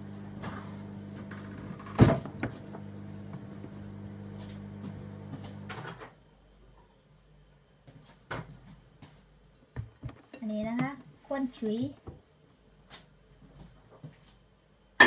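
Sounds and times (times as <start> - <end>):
kitchen appliance humming: 0.0 - 5.9.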